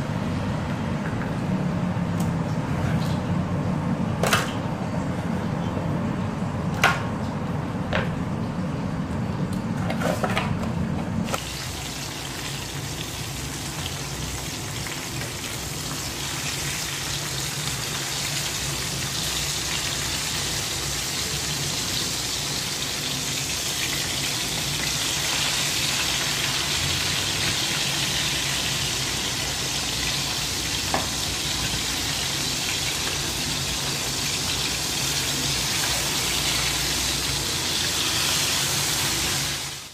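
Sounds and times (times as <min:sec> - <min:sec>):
fish sizzling in hot oil: 0:11.3 - 0:39.9.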